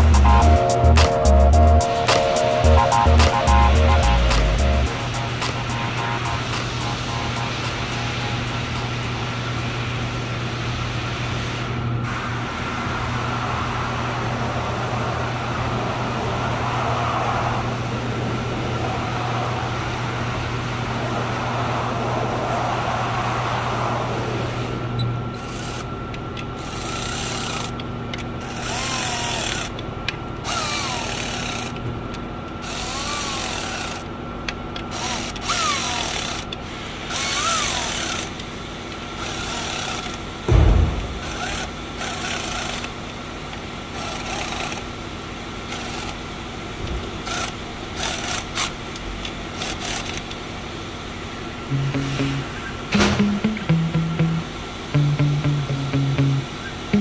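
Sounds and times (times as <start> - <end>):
steady machine hum: 0.0 - 16.2, 40.2 - 42.1, 50.8 - 57.0.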